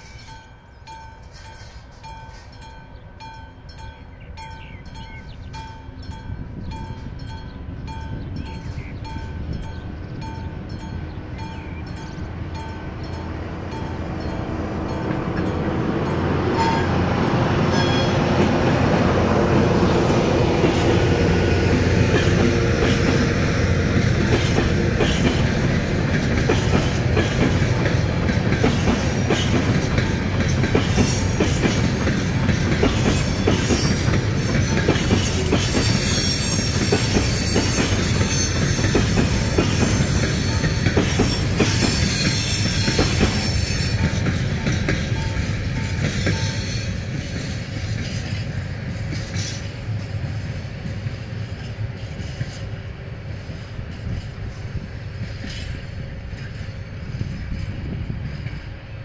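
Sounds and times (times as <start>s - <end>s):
train wheels clickety-clack: 3.8s - 59.0s
locomotive engine running: 4.6s - 58.9s
high wheel squeal: 17.7s - 18.3s, 33.1s - 44.4s.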